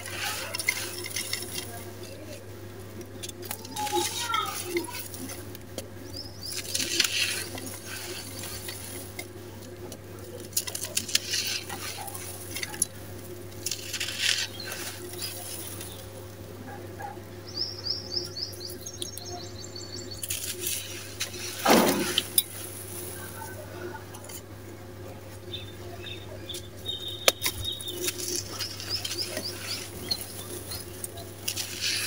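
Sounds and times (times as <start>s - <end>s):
sand crunching between fingers: 6.1s - 16.2s, 25.4s - 32.0s.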